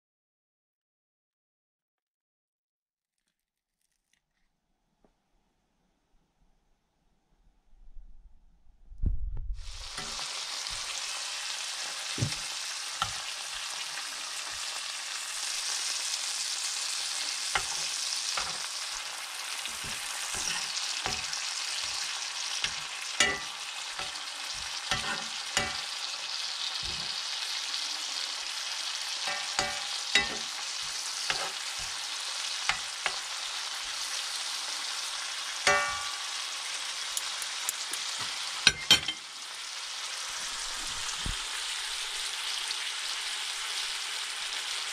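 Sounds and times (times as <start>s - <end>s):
bacon sizzling in frying pan: 9.6s - 44.9s.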